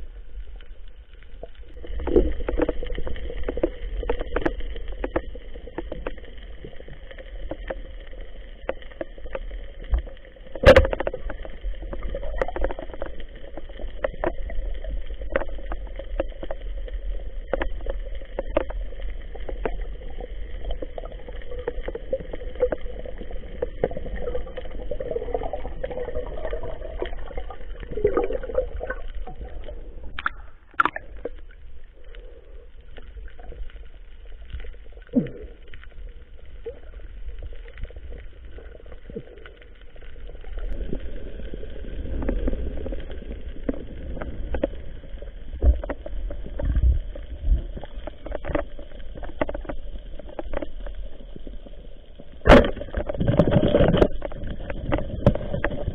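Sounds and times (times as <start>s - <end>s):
muffled underwater rumble: 0.0s - 55.9s.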